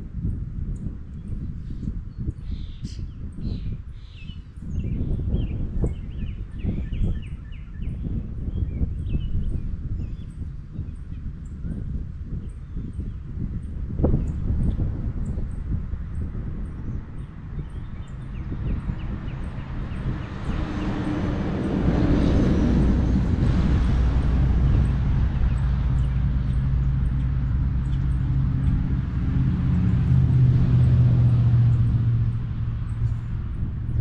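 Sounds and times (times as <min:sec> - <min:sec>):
vehicle engine humming: 0:17.2 - 0:34.0.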